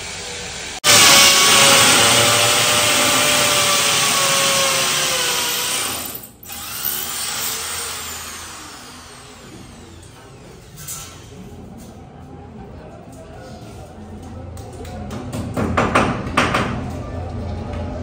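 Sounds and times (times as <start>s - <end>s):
power tool motor running: 0.8s - 10.7s
motor whine spinning down: 8.0s - 10.8s.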